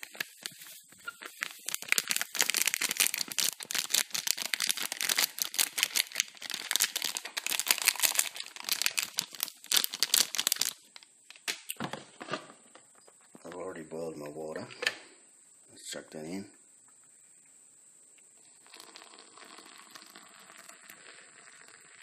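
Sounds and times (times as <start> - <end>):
coffee sachet crinkling: 0.0 - 11.6, 18.6 - 22.0.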